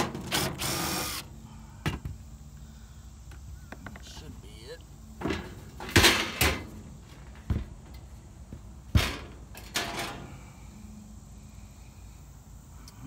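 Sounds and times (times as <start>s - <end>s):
metal panel clanks and rattles: 5.2s - 8.1s, 8.9s - 10.3s.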